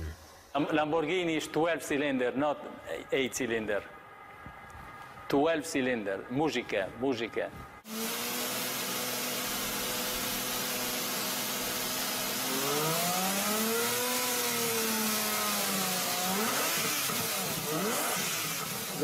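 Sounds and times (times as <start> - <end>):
car engine idling and revving: 12.1 - 19.0.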